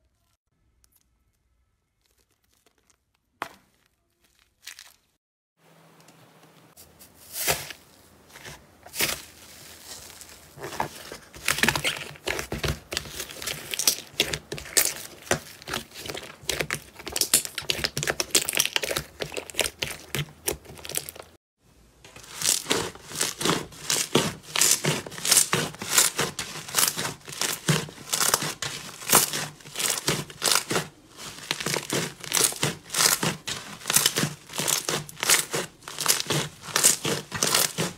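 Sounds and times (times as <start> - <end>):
hands squeezing crackling slime: 1.9 - 5.2, 11.5 - 21.3, 22.2 - 37.9.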